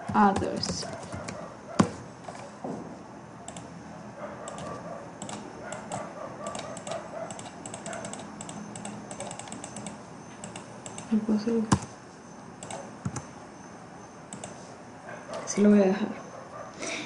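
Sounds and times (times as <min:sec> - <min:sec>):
keyboard keys clicking: 0:04.5 - 0:11.9.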